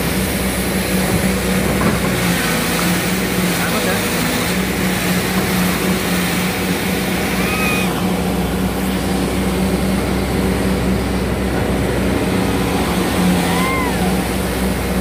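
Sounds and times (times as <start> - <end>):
excavator diesel engine running: 0.0 - 15.0
high squeal: 7.3 - 8.0.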